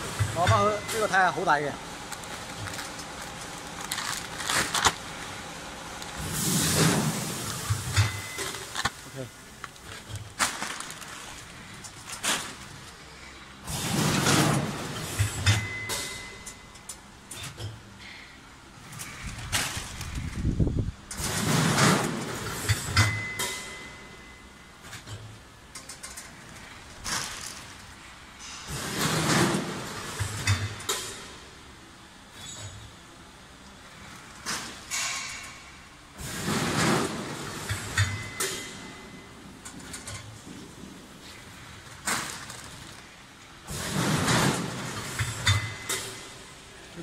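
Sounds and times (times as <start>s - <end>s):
packing machine clacks: 0.0s - 17.8s, 21.1s - 24.2s, 24.8s - 31.5s, 34.0s - 46.6s.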